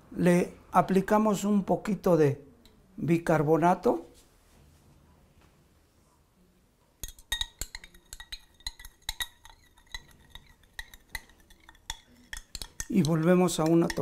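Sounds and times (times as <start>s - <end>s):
stirring rod clinking on glass: 7.0s - 14.0s.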